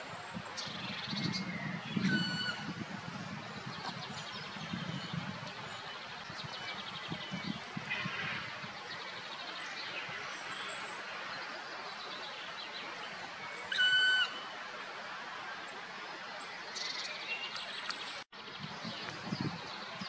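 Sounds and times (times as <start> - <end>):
woodpecker whistled call: 13.7 - 14.4.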